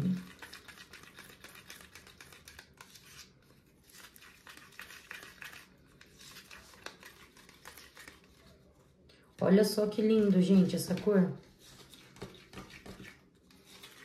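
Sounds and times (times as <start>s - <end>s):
spoon scraping a plastic cup: 0.0s - 8.7s, 10.9s - 14.0s.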